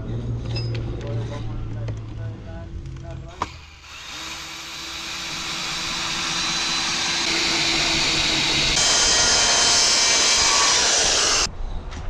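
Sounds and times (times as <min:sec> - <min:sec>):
circular saw cutting wood: 0:03.4 - 0:11.5
cordless drill driving a screw: 0:03.4 - 0:11.5.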